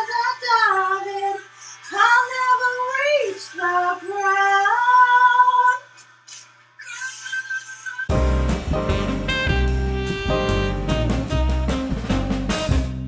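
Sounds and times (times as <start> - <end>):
woman singing unaccompanied: 0.0 - 5.8.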